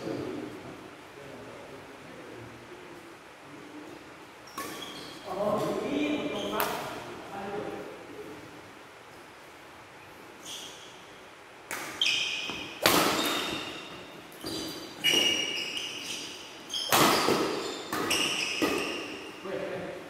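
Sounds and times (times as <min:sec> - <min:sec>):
shoe squeak on court: 0:04.5 - 0:05.3, 0:10.4 - 0:11.1, 0:12.0 - 0:19.3
rackets hitting shuttlecock: 0:11.7 - 0:15.6, 0:16.7 - 0:19.3.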